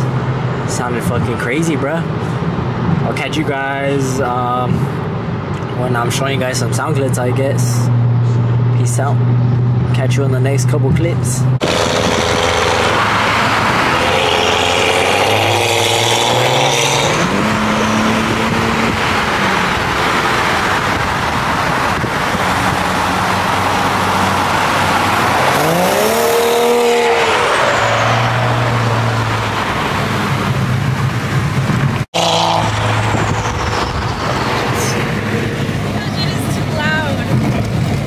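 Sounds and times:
car engine revving and accelerating: 0:11.5 - 0:38.0.

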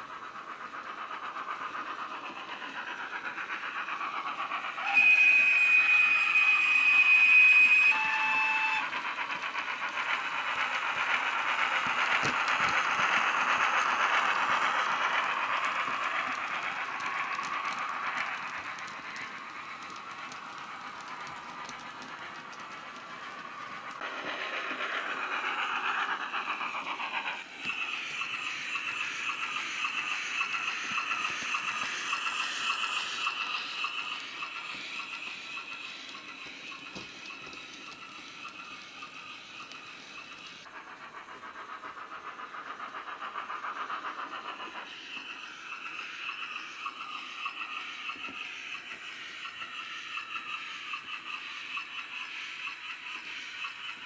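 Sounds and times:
model train running over track: 0:00.0 - 0:54.0
steam train whistle blasts: 0:04.8 - 0:09.0.

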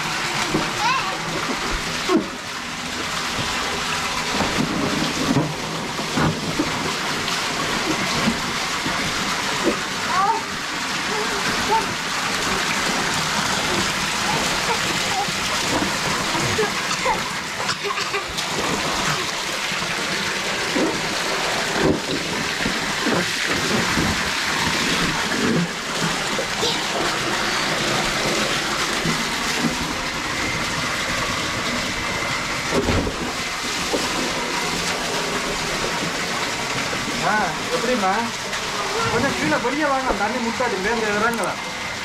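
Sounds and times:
hose water splattering into pool: 0:00.0 - 0:42.0
child splashing in water: 0:10.1 - 0:19.6, 0:20.7 - 0:29.8.

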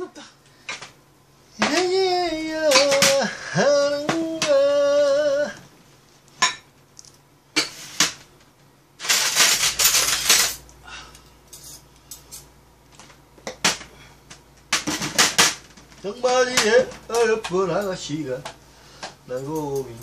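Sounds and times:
tableware clinking on metal tray: 0:09.0 - 0:10.6, 0:11.5 - 0:12.5.

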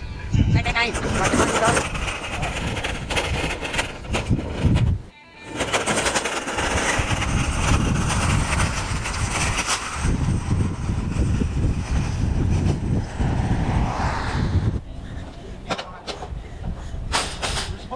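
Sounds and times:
wheels rumbling on rough pavement: 0:00.0 - 0:17.9
rattles: 0:00.6 - 0:13.2.

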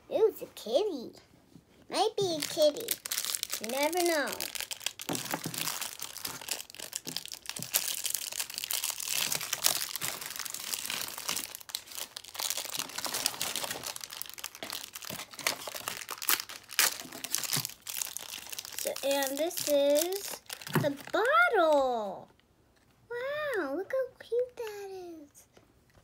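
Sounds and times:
plastic wrapper crackling: 0:02.0 - 0:22.4.

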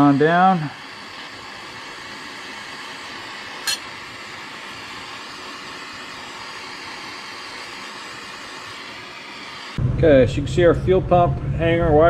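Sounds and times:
gas torch flame hissing: 0:00.0 - 0:09.8.

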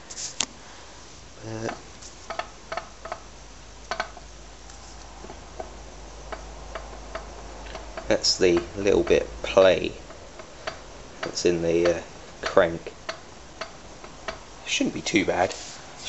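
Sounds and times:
engine crankshaft metallic clicks: 0:03.9 - 0:14.5.

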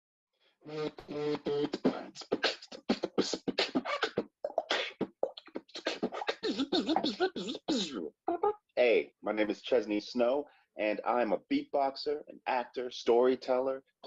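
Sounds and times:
beatboxing vocal drum hits: 0:00.7 - 0:08.1
sliding sung pitches: 0:00.7 - 0:12.2.

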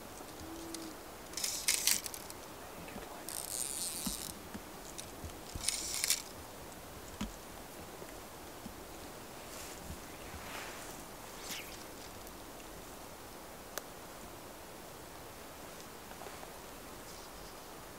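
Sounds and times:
fishing reel drag ratcheting: 0:01.3 - 0:02.3, 0:03.3 - 0:04.4, 0:05.5 - 0:06.3.

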